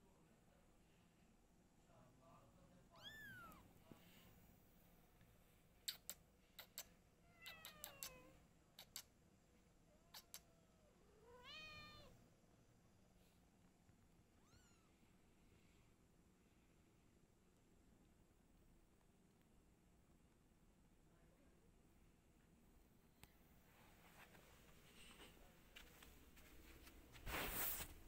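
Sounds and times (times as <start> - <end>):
cats meowing: 7.3 - 8.4, 11.2 - 12.2.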